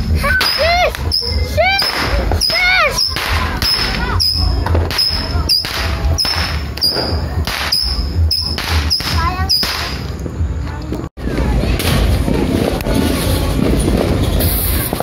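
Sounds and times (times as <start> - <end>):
rockets whistling: 0.1 - 10.2
small rockets launching with pops: 1.8 - 10.3.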